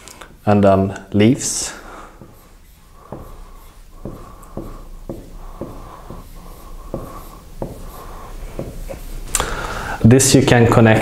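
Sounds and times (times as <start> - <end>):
marker squeaking on whiteboard: 1.8 - 9.3
marker tip tapping board: 3.0 - 9.1.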